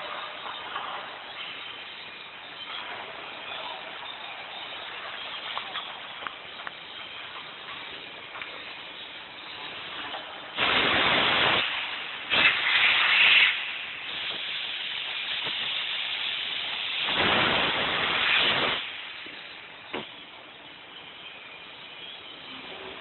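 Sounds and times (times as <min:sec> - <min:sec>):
loud machine hisses: 0:09.4 - 0:23.0.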